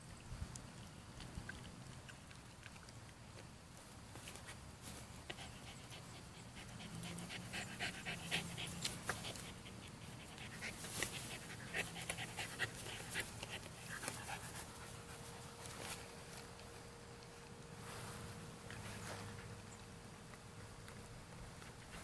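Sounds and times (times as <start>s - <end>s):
rustling dry grass: 3.8s - 6.0s, 7.4s - 22.0s
dog panting: 5.2s - 16.7s.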